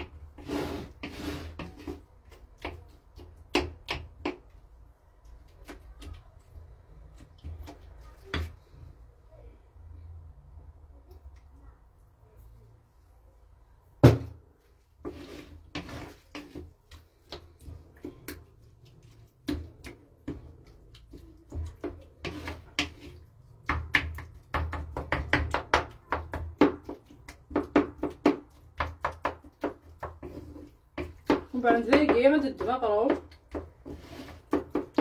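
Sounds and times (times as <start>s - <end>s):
wooden spoon scraping earthenware dish: 0.0s - 3.5s, 14.9s - 24.7s, 26.6s - 35.0s.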